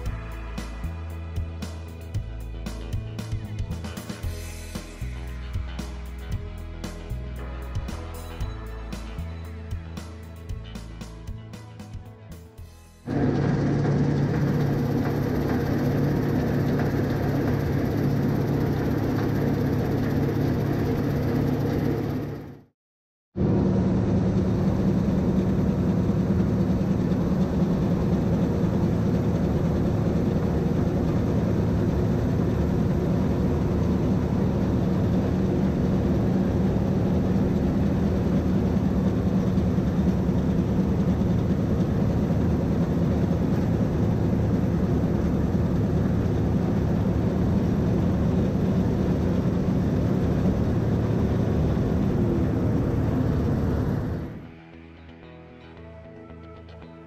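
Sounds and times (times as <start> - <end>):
combine harvester droning: 13.1 - 22.7, 23.4 - 54.4.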